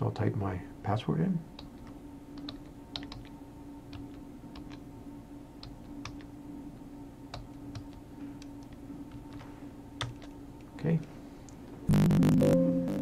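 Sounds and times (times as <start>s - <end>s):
steady low hum: 0.0s - 13.0s
computer keyboard typing: 1.6s - 4.8s, 5.6s - 6.3s, 7.3s - 10.4s.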